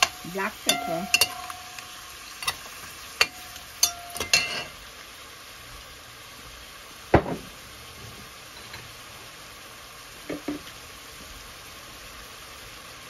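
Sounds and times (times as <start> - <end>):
metal spoon scraping metal pot: 0.0 - 1.8
faint sizzling: 0.0 - 13.0.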